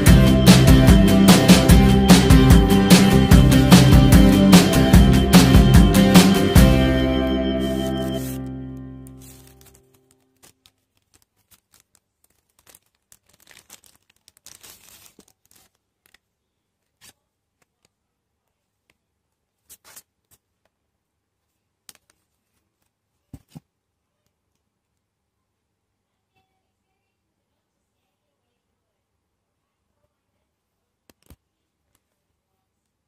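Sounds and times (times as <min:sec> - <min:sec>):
plastic packaging crinkling: 0:09.0 - 0:16.3.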